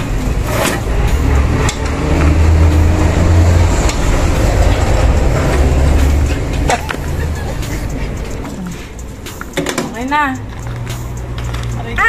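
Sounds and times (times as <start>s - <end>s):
loud low rumble: 0.0s - 8.7s.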